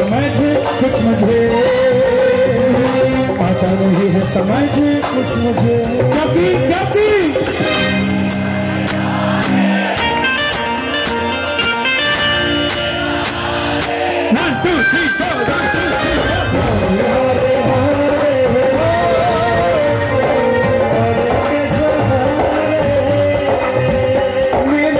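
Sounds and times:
percussion: 0.0 - 24.9
crowd hand claps: 12.6 - 14.3.

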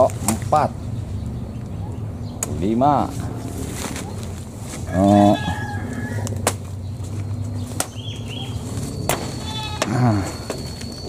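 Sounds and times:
machete chopping wooden pole: 6.3 - 6.7, 7.7 - 8.0.

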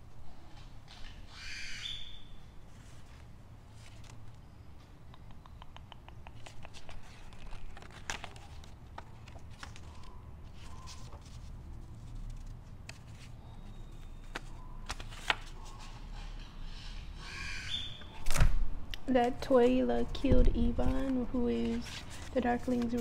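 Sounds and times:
paper rustling and crinkling: 2.7 - 4.4, 6.4 - 16.0, 19.5 - 23.0
small clicks and taps: 5.1 - 7.0.

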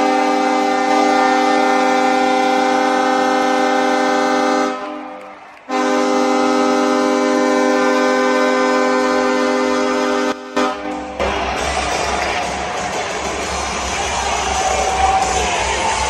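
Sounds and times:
goal horn blast: 0.0 - 12.1.

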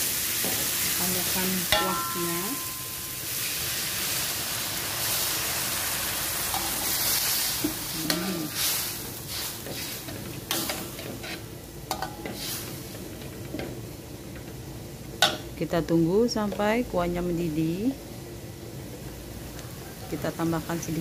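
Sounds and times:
liquid sizzling in hot wok: 0.0 - 21.0
metal spatula scraping wok: 6.5 - 11.5.

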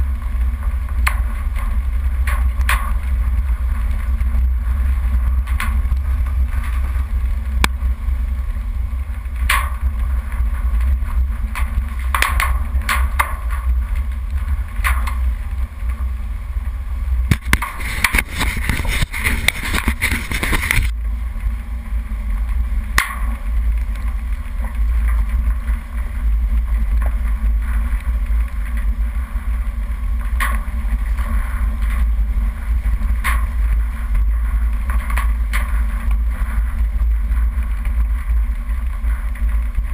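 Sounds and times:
off-road vehicle rumble: 0.0 - 39.9
scraping rub over camera: 17.4 - 20.9.

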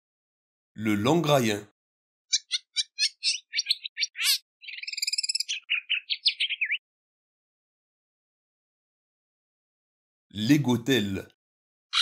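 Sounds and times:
bird chirps and trill: 2.3 - 6.8.

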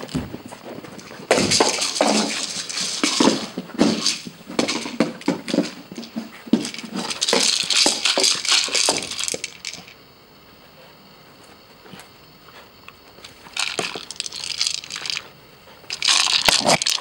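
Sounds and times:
plastic ball rattling on floor: 1.0 - 10.0, 13.5 - 15.3, 15.9 - 17.0.

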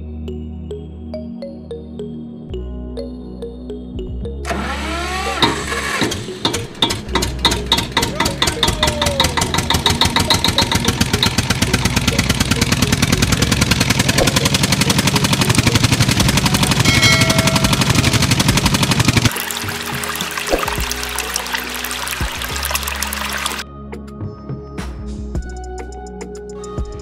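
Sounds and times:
small pump engine putting: 4.5 - 23.6.

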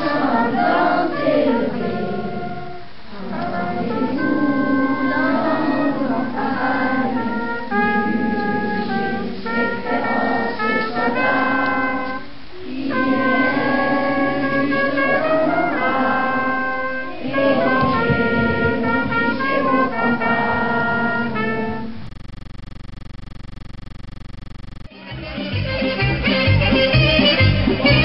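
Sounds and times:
trumpets and trombones playing: 14.4 - 17.1.

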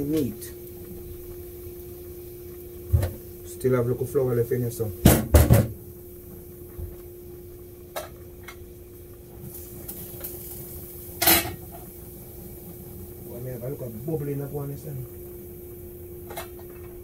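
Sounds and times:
steady low hum: 0.0 - 17.0
dishes and pans knocking: 5.0 - 5.8.

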